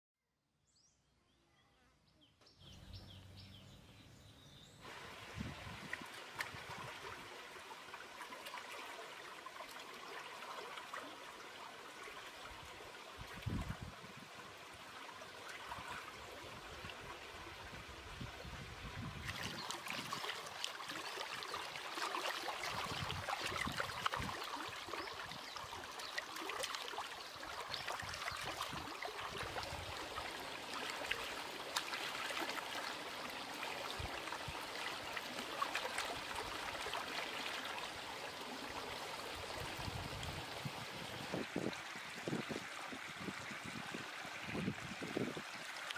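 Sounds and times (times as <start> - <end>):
stream trickling over rocks: 4.8 - 45.9
hands splashing in water: 19.2 - 21.3.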